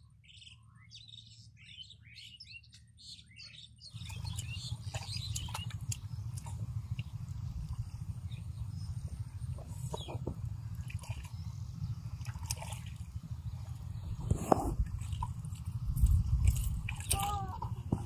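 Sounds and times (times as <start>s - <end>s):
small birds chirping: 0.0s - 18.0s
low rumble: 3.8s - 18.0s.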